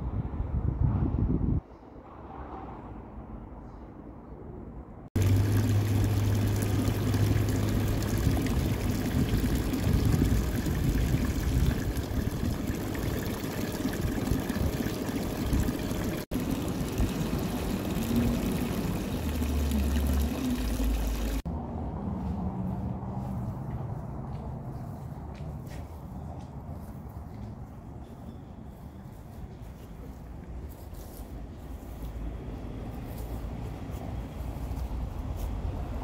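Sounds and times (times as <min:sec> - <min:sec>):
fountain water splashing into basin: 0:05.2 - 0:21.5.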